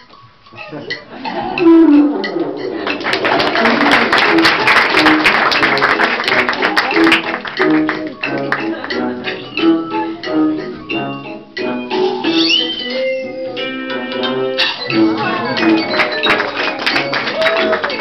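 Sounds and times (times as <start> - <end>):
music with plucked guitar: 6.6 - 11.7.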